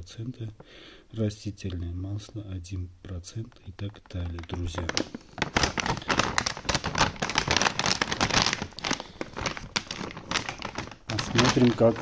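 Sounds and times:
plastic bag crinkling: 3.3s - 12.0s.

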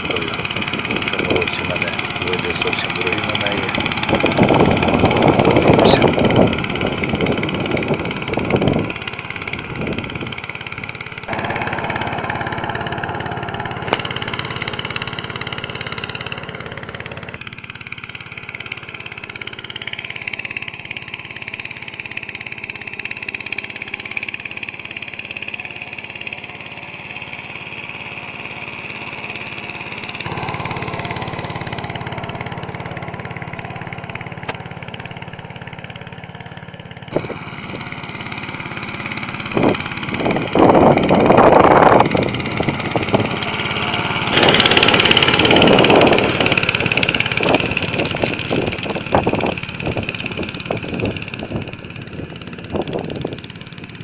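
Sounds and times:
tractor engine running under load: 0.0s - 54.0s.

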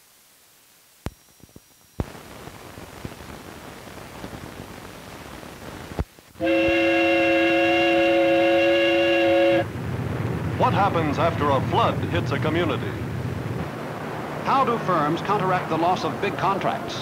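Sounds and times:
film hiss and crackle: 0.0s - 17.0s
pop: 1.0s - 3.4s
multi-note horn chord: 6.4s - 9.7s.

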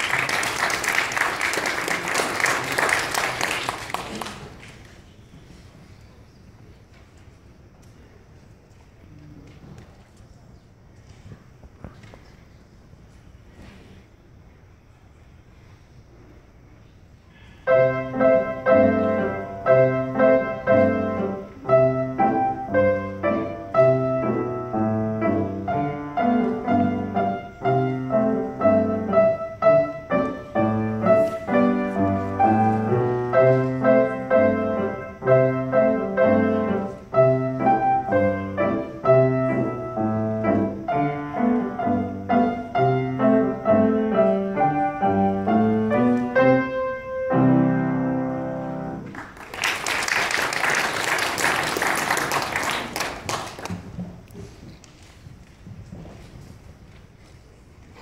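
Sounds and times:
piano duet playing carol: 17.6s - 49.1s.

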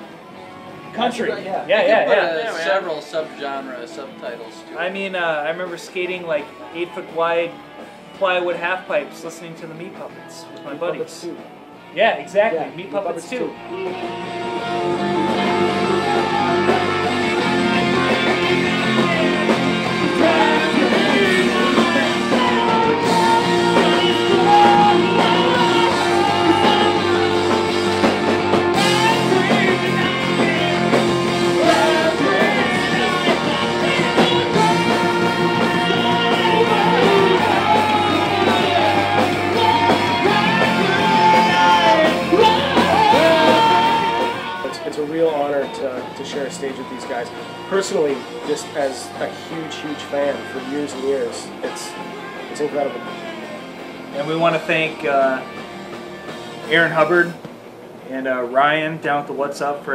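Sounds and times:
sung and shouted vocals: 12.7s - 54.8s
rock band playing live: 12.7s - 58.0s.

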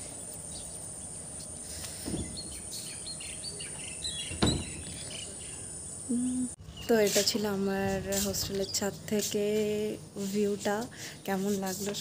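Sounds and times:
small birds chirping: 0.0s - 9.0s
soft low thump: 2.0s - 2.6s, 4.3s - 5.0s.

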